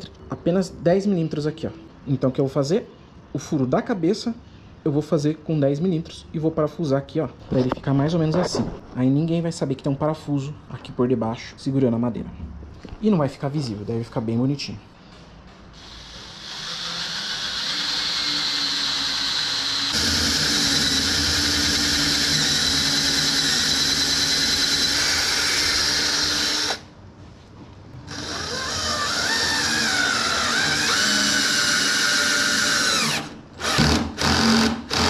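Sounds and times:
cordless drill boring into wood: 15.8 - 26.8, 28.1 - 35.0.

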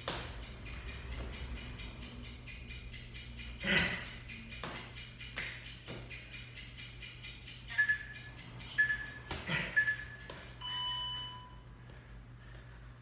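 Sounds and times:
long low beep: 7.7 - 11.7.

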